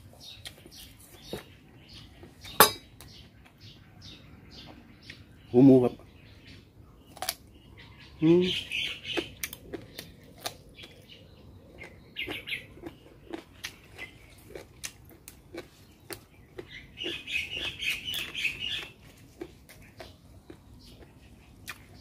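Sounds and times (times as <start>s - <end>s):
small birds chirping: 0.0s - 22.0s
man chewing and lip-smacking: 9.0s - 11.1s, 11.7s - 22.0s.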